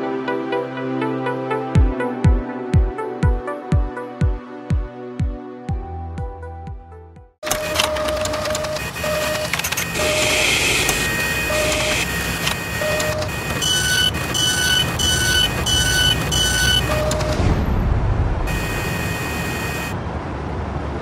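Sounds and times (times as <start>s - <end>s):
sharp clicks: 7.4s - 17.5s
short tones: 7.4s - 17.6s, 18.5s - 20.0s
mechanical whirring and clanking: 7.4s - 20.0s
high beeps: 7.5s - 17.7s, 18.5s - 20.0s.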